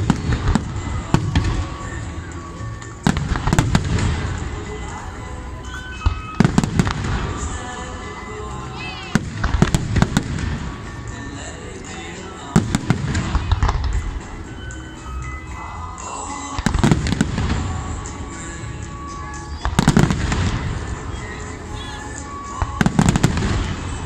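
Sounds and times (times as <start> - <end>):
fireworks bursting with sharp bangs: 0.0 - 5.0, 5.6 - 8.3, 9.0 - 15.4, 16.5 - 24.0
music playing: 0.0 - 24.0.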